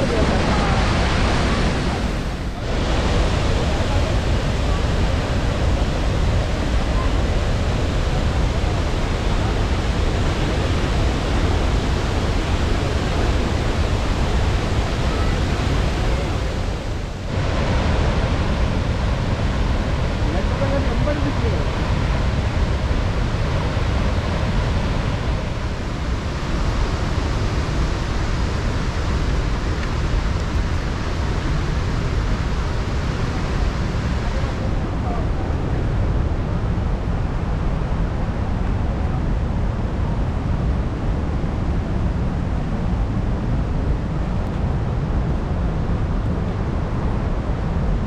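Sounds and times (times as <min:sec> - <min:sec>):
waterfall rushing: 0:00.0 - 0:37.3.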